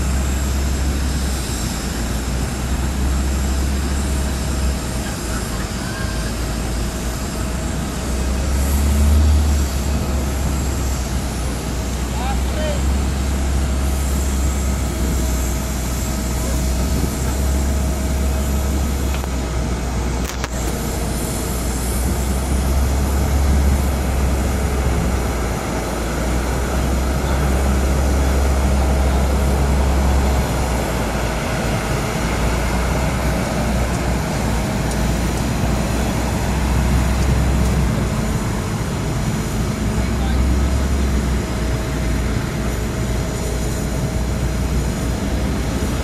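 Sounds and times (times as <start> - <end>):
aircraft mechanical drone: 0.0 - 46.0.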